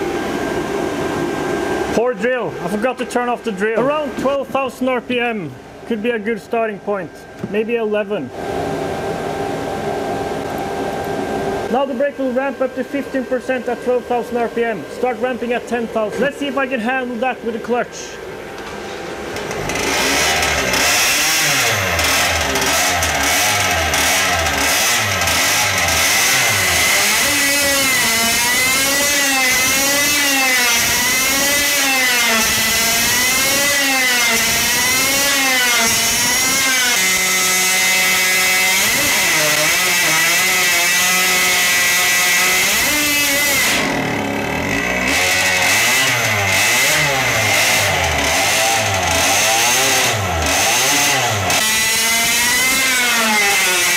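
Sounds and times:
two-stroke engine revving: 19.2 - 53.9.

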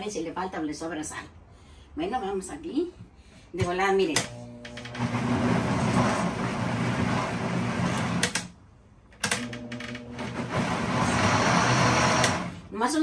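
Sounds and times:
blender motor running: 4.3 - 8.2, 9.4 - 12.6.

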